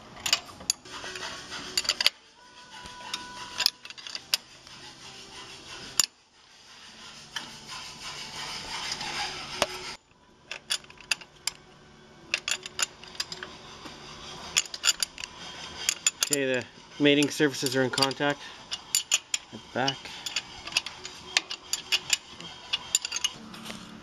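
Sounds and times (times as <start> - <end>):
wrench clicking on bolts: 3.0 - 4.5, 12.3 - 13.5, 14.5 - 23.4.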